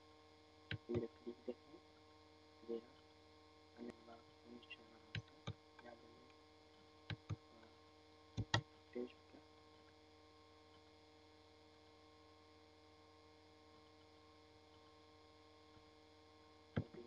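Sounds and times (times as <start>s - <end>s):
electrical mains hum: 0.0s - 17.0s
computer mouse clicks: 7.1s - 7.4s, 8.4s - 8.6s.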